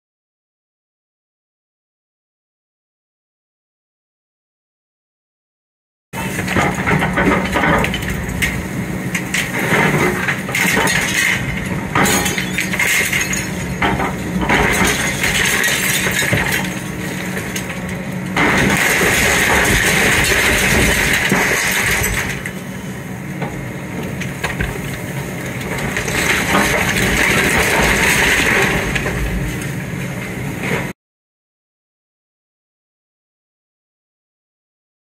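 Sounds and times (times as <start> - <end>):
bricks and debris crashing: 6.2 - 22.8, 24.1 - 29.7
excavator engine running: 6.2 - 30.9
glass clinking and breaking: 10.1 - 17.8.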